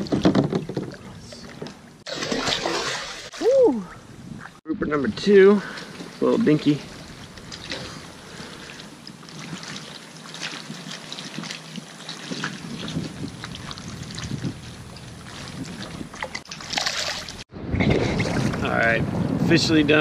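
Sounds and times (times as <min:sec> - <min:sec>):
handling knocks and rustles: 0:00.0 - 0:01.8
water lapping against kayak: 0:00.0 - 0:18.7
wind buffeting microphone: 0:10.6 - 0:16.5, 0:17.4 - 0:20.0.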